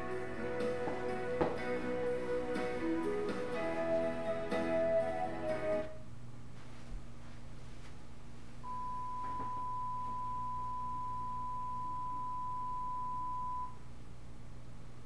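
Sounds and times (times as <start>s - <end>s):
faint low hum: 5.7s - 15.0s
pure test tone: 8.6s - 13.8s.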